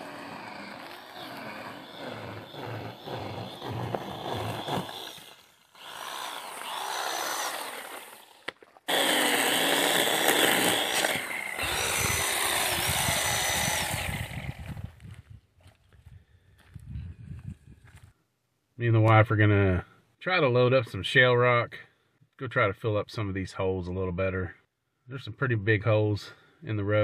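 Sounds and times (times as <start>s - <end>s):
chainsaw cutting wood: 0.0s - 15.0s.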